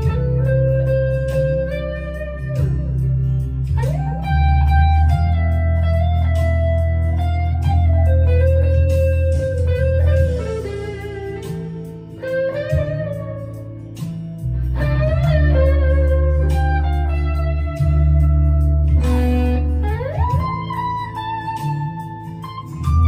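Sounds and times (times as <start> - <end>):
low bass part: 0.0 - 23.0
overdriven electric guitar lead: 0.0 - 23.0.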